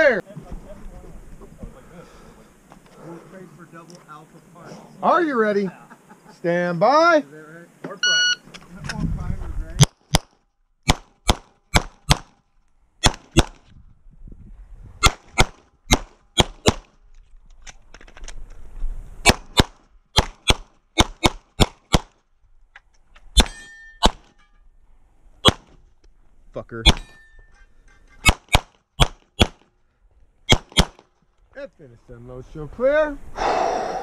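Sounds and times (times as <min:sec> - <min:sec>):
pistol shots: 0:10.8 - 0:12.3, 0:19.2 - 0:22.1, 0:23.4 - 0:24.3, 0:28.2 - 0:29.6, 0:30.5 - 0:31.0
steel target clang: 0:23.4 - 0:24.6, 0:26.9 - 0:28.4.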